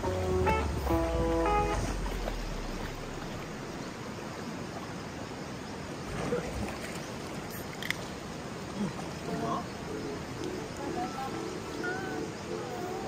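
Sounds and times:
stream flowing over rocks: 0.0 - 13.0.

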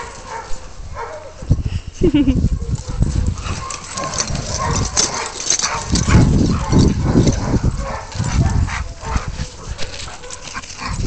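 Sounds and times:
dogs yipping and whining: 2.4 - 11.0.

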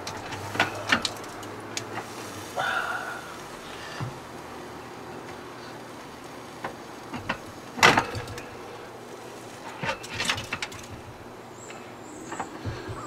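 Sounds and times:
metal rack clinks: 7.2 - 8.5, 9.7 - 11.1.

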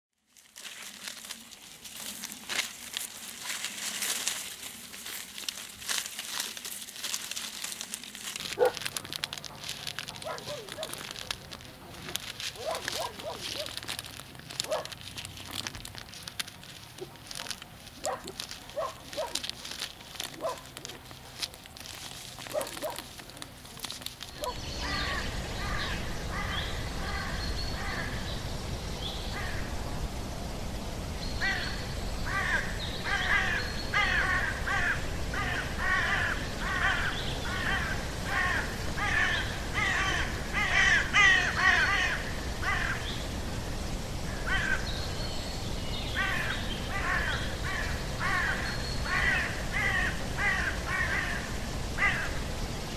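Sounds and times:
light dry crackling and clicks: 0.2 - 24.7
crows cawing: 31.4 - 43.1, 44.3 - 44.9, 46.2 - 52.4.

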